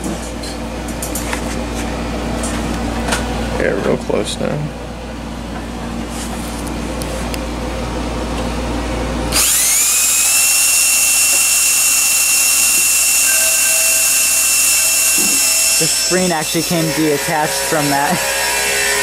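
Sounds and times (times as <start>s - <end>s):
cordless drill whining: 9.3s - 19.0s.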